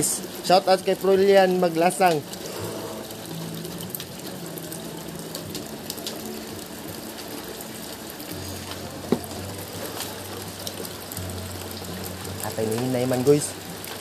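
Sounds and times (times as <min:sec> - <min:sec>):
rain hissing: 0:00.0 - 0:14.0
sharp drip taps: 0:09.1 - 0:09.4.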